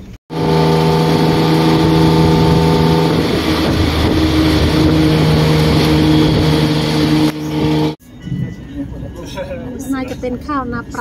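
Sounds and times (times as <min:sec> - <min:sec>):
motorcycle engine running: 0:00.0 - 0:08.0
road and wind noise: 0:00.0 - 0:11.0.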